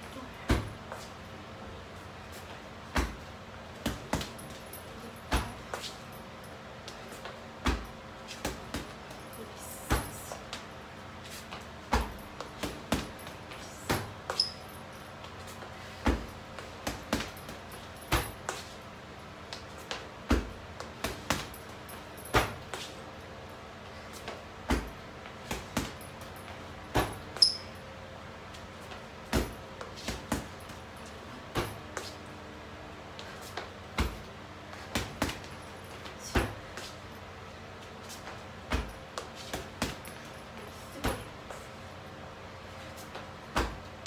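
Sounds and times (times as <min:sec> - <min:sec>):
punches thumping a punching bag: 0:00.4 - 0:00.8, 0:02.9 - 0:04.6, 0:05.2 - 0:05.7, 0:07.6 - 0:09.1, 0:11.8 - 0:14.4, 0:16.0 - 0:18.5, 0:20.2 - 0:21.6, 0:22.3 - 0:22.7, 0:24.6 - 0:26.0, 0:26.9 - 0:27.4, 0:29.2 - 0:30.8, 0:33.9 - 0:35.5, 0:36.2 - 0:36.7, 0:38.6 - 0:40.2, 0:43.5 - 0:43.9.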